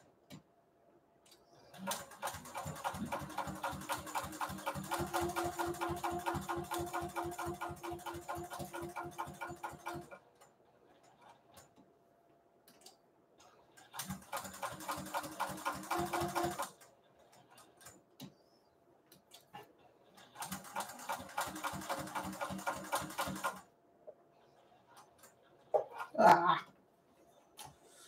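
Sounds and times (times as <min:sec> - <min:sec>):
sewing machine clicking: 0:01.7 - 0:11.7, 0:12.7 - 0:18.0, 0:19.2 - 0:23.6.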